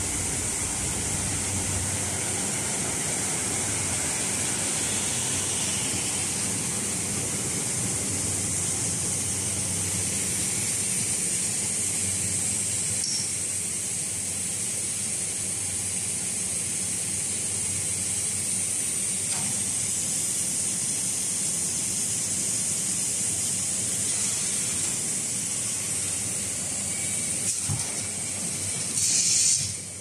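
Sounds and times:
low machine hum: 0.0s - 13.3s
high machine hiss: 0.0s - 30.0s.

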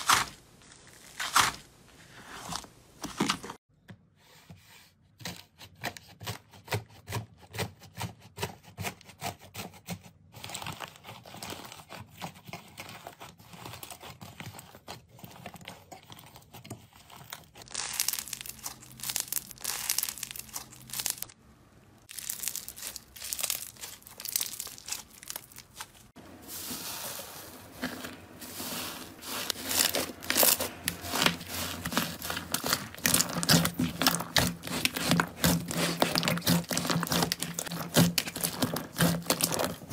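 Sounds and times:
slime and sponge squeezed by hand: 0.0s - 3.6s, 16.4s - 21.4s, 22.0s - 39.9s.

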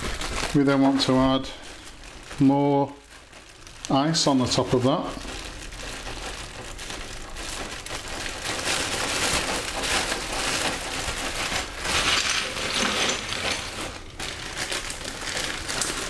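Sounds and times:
ice cubes clattering and crunching: 0.0s - 16.0s
plastic bag crinkling: 0.0s - 16.0s.

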